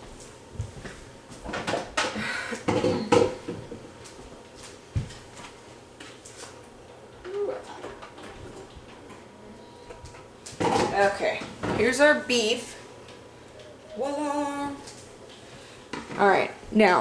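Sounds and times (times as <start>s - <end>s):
dishes and cupboards clinking: 1.4s - 3.8s, 9.8s - 12.0s.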